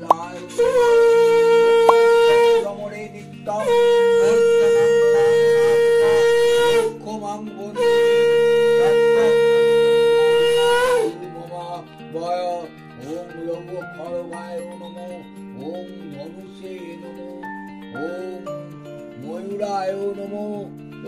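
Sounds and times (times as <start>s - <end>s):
conch shell blasts: 0.0s - 2.7s, 7.8s - 11.1s.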